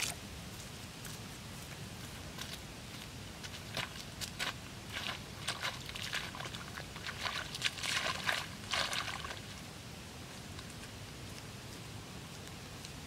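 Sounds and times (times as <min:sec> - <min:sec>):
hoe chopping wet mud: 0:03.5 - 0:09.4.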